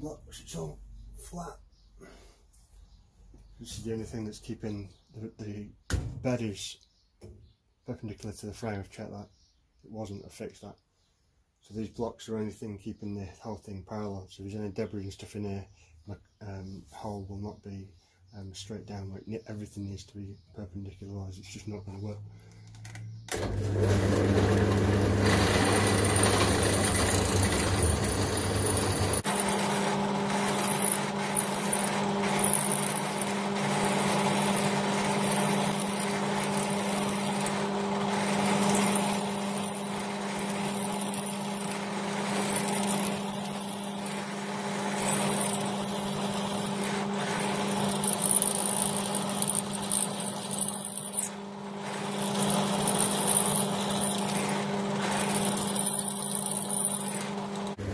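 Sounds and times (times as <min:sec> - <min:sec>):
drill press motor running: 0:23.3 - 0:57.9
high-pitched metal cutting noise: 0:23.9 - 0:57.9.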